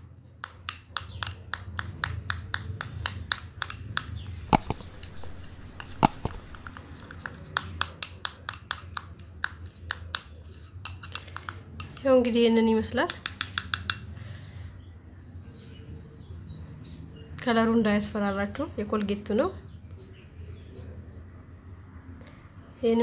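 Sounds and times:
low steady hum: 4.4s - 7.0s
toothbrush knocking against dish: 4.5s - 10.3s.

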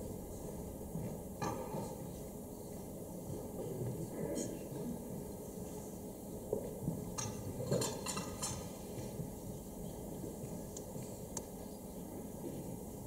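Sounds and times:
tableware clinks and knocks: 7.1s - 8.8s.

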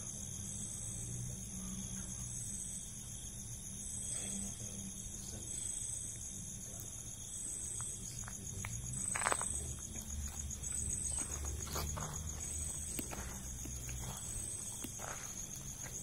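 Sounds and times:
insect high fast pulsing trill: 0.0s - 16.0s
insect repeating high call: 0.0s - 16.0s
footsteps: 9.0s - 16.0s.

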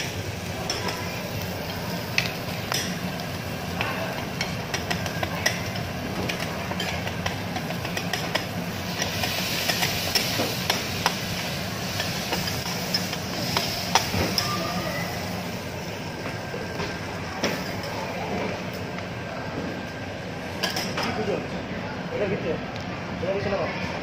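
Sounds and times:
meat sizzling in oil: 0.0s - 16.8s
metal spatulas clacking on griddle: 3.8s - 11.2s.

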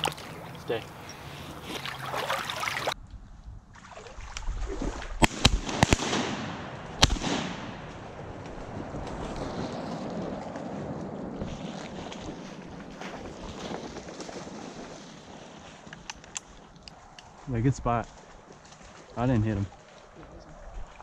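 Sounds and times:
shotgun shots: 5.2s - 8.0s
wind noise on microphone: 8.0s - 15.6s.

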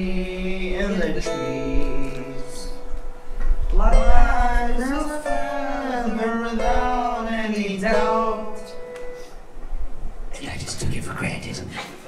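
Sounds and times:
person singing long held notes: 0.0s - 3.0s, 3.7s - 9.2s.

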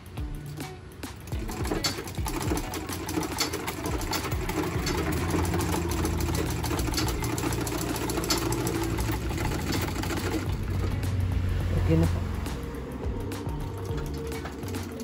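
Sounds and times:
sewing machine running: 1.3s - 11.1s, 13.0s - 15.0s.

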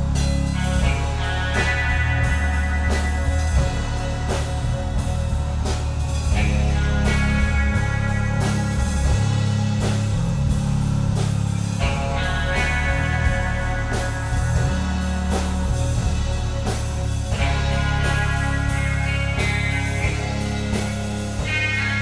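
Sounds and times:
drum kit steady beat: 0.0s - 22.0s
electric guitar sustained notes: 0.0s - 22.0s
heavy bass line: 0.0s - 22.0s.

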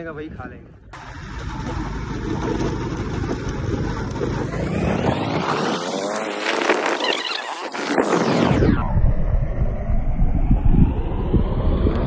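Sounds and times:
vehicle engine revving: 1.0s - 7.4s.

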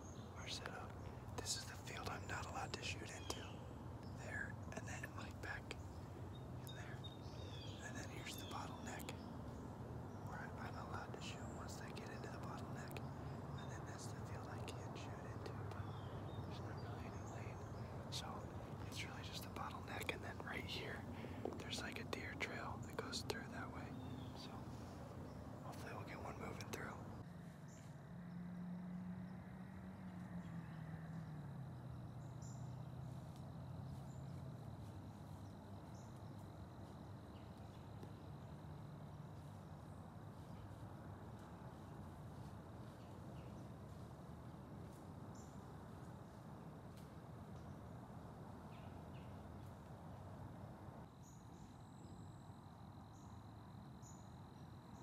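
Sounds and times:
low hiss: 0.0s - 27.2s
distant engine drone: 0.0s - 36.4s.

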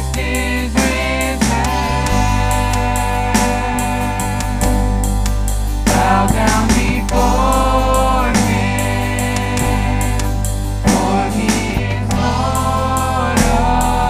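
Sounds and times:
men singing along: 0.0s - 5.1s, 5.8s - 14.0s
gospel band playing: 0.0s - 14.0s
woman singing lead: 5.9s - 14.0s.

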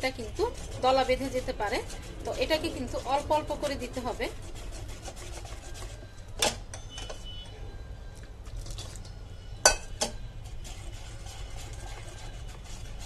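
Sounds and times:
whisk ticking on metal bowl: 0.0s - 6.1s
sharp clink: 9.6s - 10.2s.

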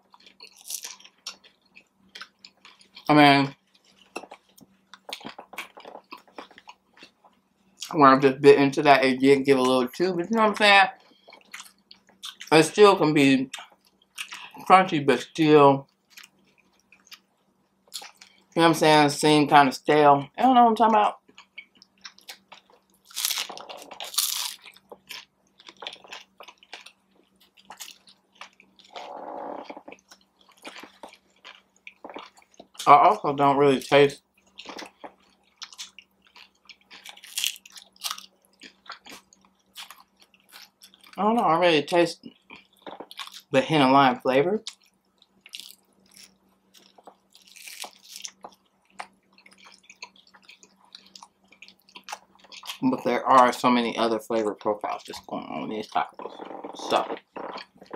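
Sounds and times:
chewing with wet mouth clicks: 0.0s - 7.9s, 11.0s - 12.5s, 13.5s - 14.6s, 15.8s - 18.4s, 21.2s - 32.8s, 34.4s - 41.2s, 42.2s - 43.5s, 44.6s - 52.8s
taco shell crunching: 0.0s - 8.0s, 21.2s - 33.2s, 33.8s - 41.2s, 44.5s - 53.0s.

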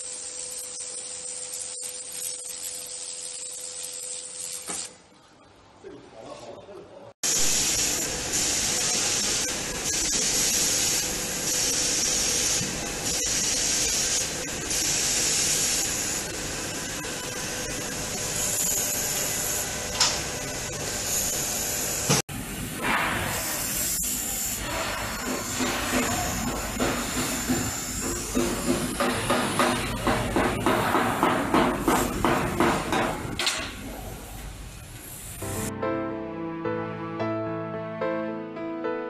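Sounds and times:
laser welding hiss: 0.0s - 5.0s, 7.2s - 22.2s, 22.8s - 33.0s.

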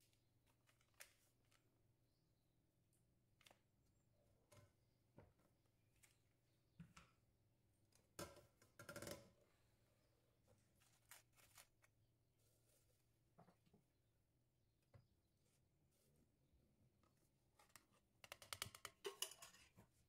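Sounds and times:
paper sachet crinkling: 10.8s - 11.9s.

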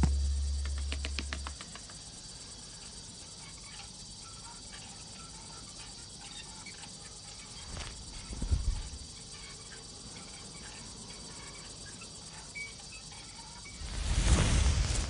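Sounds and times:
low rumble: 0.0s - 1.2s
crickets chirping faintly: 0.0s - 15.0s
steady hiss: 0.0s - 15.0s.

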